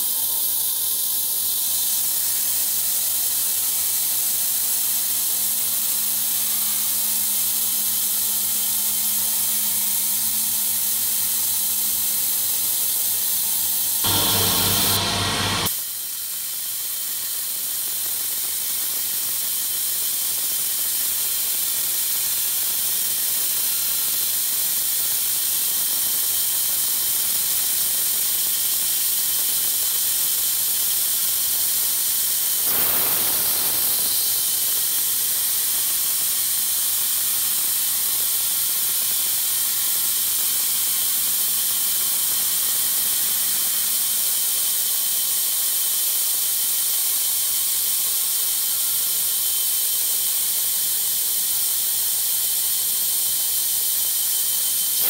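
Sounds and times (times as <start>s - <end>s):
power saw cutting wood: 4.3s - 15.7s, 32.6s - 34.8s.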